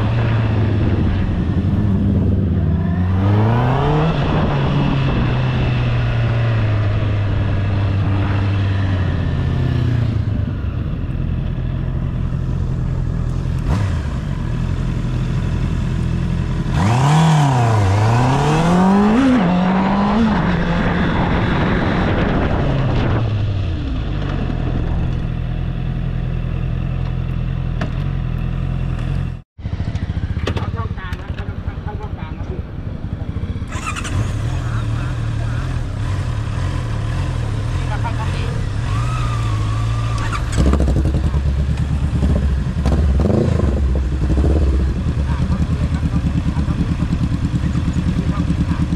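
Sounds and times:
motorcycle engine revving: 0.0 - 48.9.

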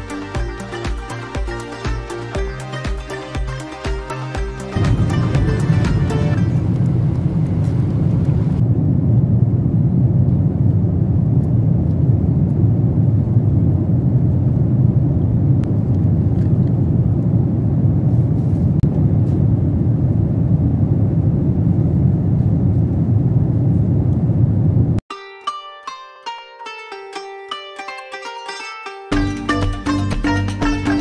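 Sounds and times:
airliner cabin noise in flight: 5.0 - 25.0.

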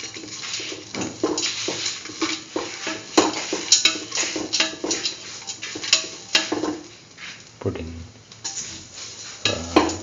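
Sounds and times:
utensil scraping metal pan: 0.0 - 6.6
utensil clicking on pan: 0.0 - 6.9.

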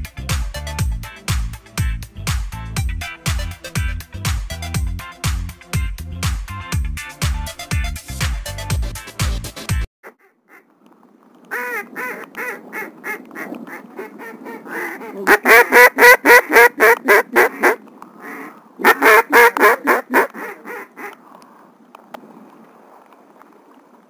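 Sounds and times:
duck call quacks: 11.5 - 21.2.

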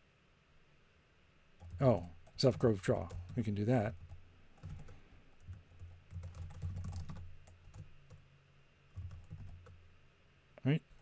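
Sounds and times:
typing on computer keyboard: 1.6 - 8.2, 9.0 - 9.8.

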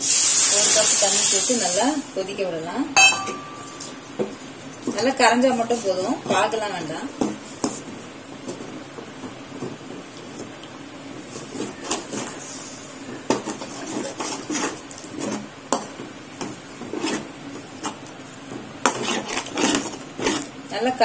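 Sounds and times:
spatula scraping a metal pan: 11.3 - 18.0, 18.8 - 20.5.

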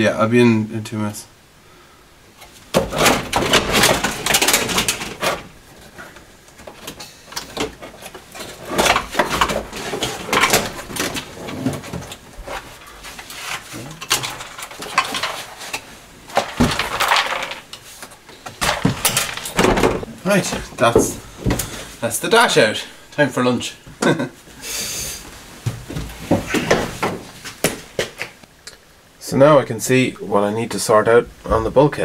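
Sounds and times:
plastic clattering and creaking: 2.4 - 21.7.

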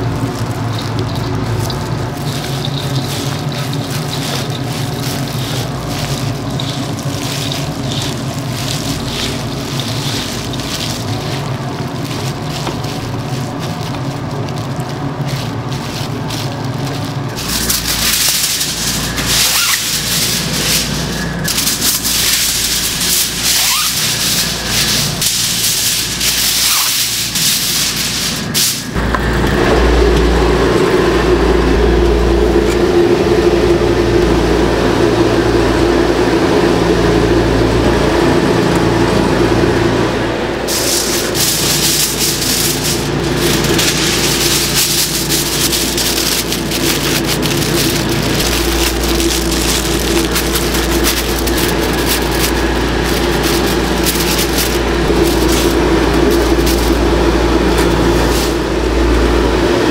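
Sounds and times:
aluminium foil crinkling: 0.0 - 29.0, 40.6 - 58.6
commercial kitchen noise: 0.0 - 59.9
deep steady hum: 0.0 - 59.9
steady hum: 0.0 - 59.9.

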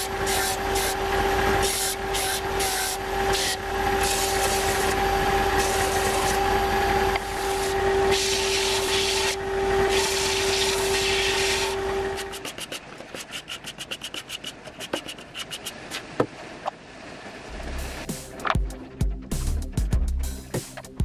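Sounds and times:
sanding block rasping on wood: 0.0 - 1.0, 1.6 - 16.0
belt sander humming: 0.0 - 16.0
wood scraping on sanding belt: 0.0 - 16.1.

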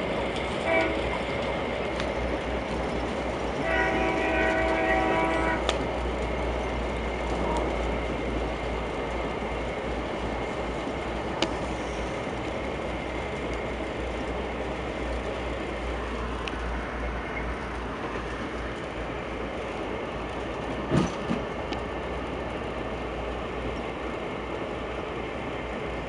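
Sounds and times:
sharp track clicks: 0.0 - 3.6, 5.6 - 11.6, 12.4 - 22.4
train wheels rumbling on rails: 0.0 - 26.0.

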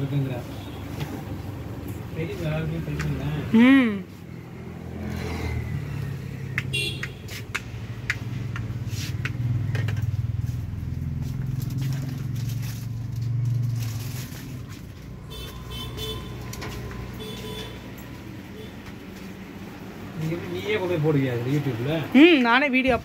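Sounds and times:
vehicle engine drone: 1.3 - 17.2.

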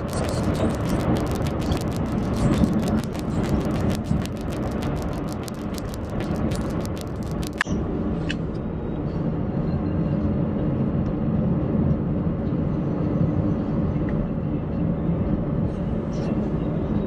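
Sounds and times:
rapid sharp clicks: 0.0 - 7.6.

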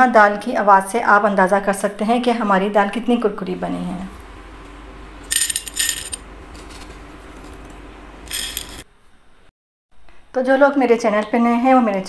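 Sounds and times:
fried lentils rattling onto plate: 5.3 - 7.0, 8.3 - 8.8.

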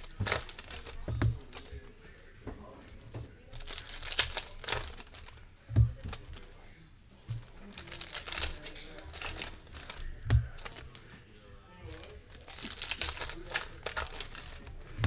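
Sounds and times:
wrappers crinkling and tearing: 0.0 - 1.9, 3.5 - 6.6, 7.4 - 11.1, 11.9 - 15.0.

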